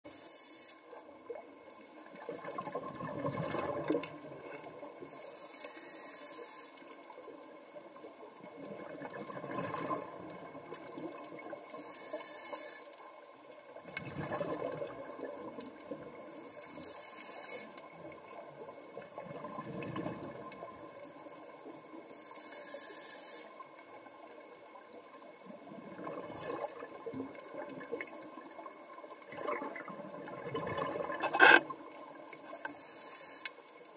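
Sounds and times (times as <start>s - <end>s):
regulator breathing hiss: 0.1s - 1.0s, 5.0s - 6.9s, 11.6s - 13.0s, 16.2s - 17.8s, 22.1s - 23.6s, 32.4s - 33.7s
gurgle of exhaled bubbles: 2.0s - 4.4s, 8.6s - 11.5s, 13.8s - 16.1s, 19.0s - 20.7s, 25.4s - 31.9s.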